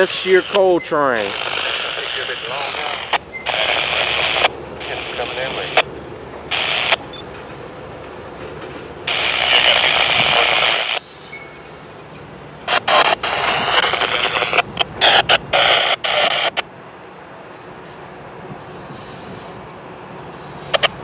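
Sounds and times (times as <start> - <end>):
radio transmission over scanner: 0.0 - 8.0, 8.9 - 11.5, 12.6 - 16.6, 20.6 - 21.0.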